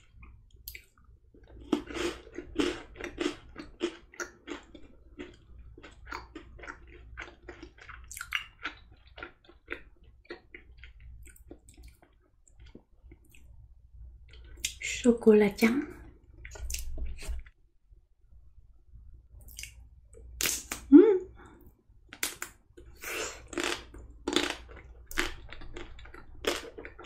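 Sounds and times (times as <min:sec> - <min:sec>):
chewing crunchy chocolate: 0:00.0 - 0:13.5, 0:22.8 - 0:27.0.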